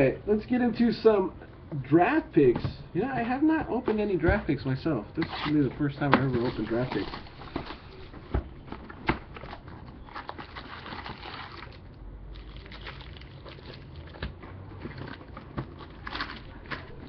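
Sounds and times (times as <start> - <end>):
foil packs shuffling: 5.2 - 8.0, 8.8 - 11.8, 12.7 - 17.0.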